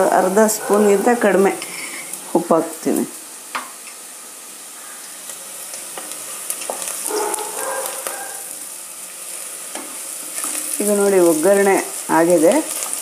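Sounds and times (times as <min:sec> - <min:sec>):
onions sizzling in hot oil: 0:00.0 - 0:13.0
spatula scraping and stirring: 0:09.3 - 0:11.0.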